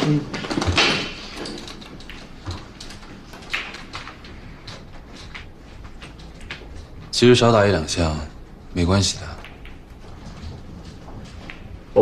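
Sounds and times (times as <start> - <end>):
billiard balls clacking: 0.0 - 7.1
low room hum: 0.0 - 12.0.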